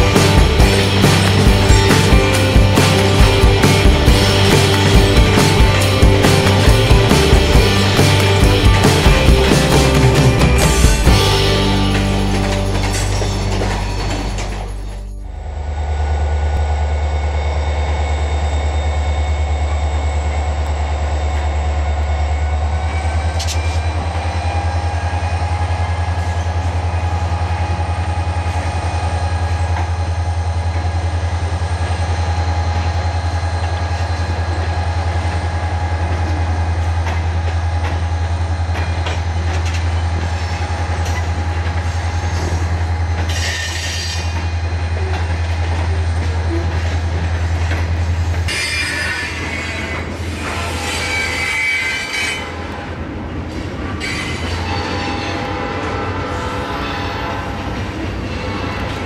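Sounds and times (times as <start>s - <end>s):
freight train rumbling: 0.0s - 59.0s
high wheel tones: 0.0s - 59.0s
high wheel squeal: 38.8s - 47.1s, 48.3s - 52.9s, 53.8s - 59.0s.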